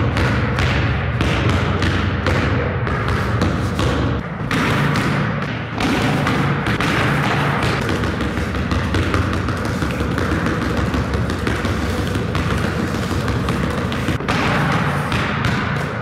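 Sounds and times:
basketball bouncing on hardwood floor: 0.0s - 16.0s.

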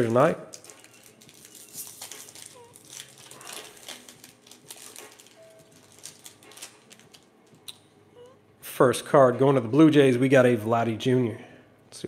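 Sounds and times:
foil wrapper crinkling and tearing: 0.0s - 7.4s.

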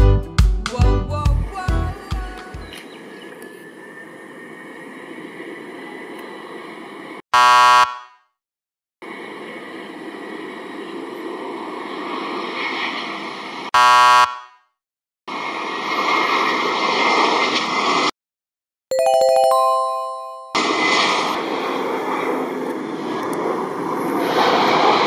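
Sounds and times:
jet engine noise: 2.9s - 7.2s, 9.0s - 13.7s, 15.3s - 18.1s, 20.6s - 25.0s
loud short buzzer: 7.4s - 8.2s, 13.8s - 14.6s.

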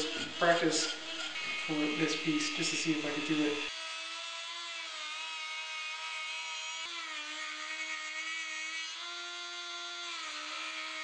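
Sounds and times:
grinding hiss: 0.0s - 3.7s
rotary tool whining: 0.0s - 11.0s.

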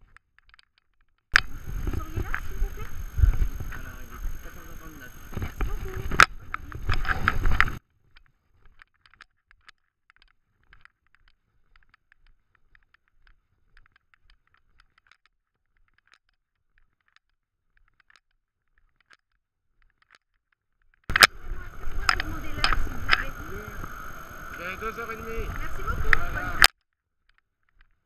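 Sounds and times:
light clicks of camera rig: 1.4s - 7.8s, 21.1s - 26.7s
rubbing on microphone: 1.4s - 7.8s.

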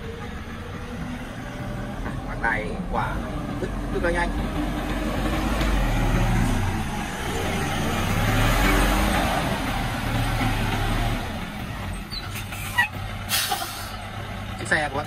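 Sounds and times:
diesel truck engine driving past: 0.0s - 15.0s
air brakes hissing: 12.3s - 14.0s.

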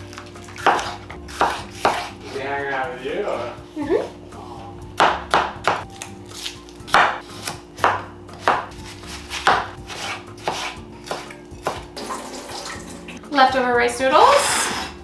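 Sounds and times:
knife chopping on cutting board: 0.6s - 2.4s, 5.0s - 11.9s.

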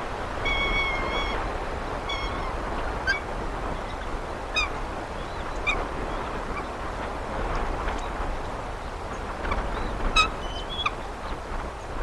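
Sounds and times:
steady background hiss: 0.0s - 12.0s
birds calling: 0.3s - 6.9s.

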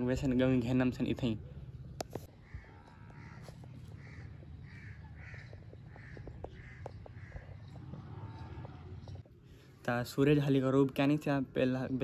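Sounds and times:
bird calling: 2.2s - 8.6s.

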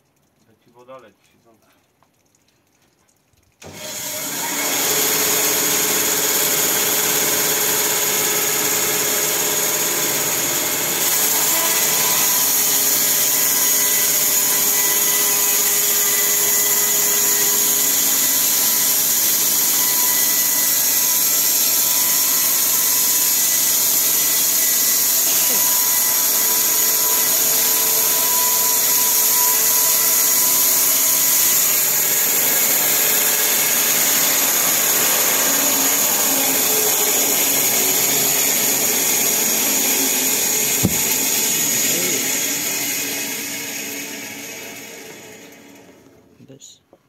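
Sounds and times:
band sawmill motor running: 3.6s - 46.2s
band blade sawing through log: 8.0s - 42.8s.

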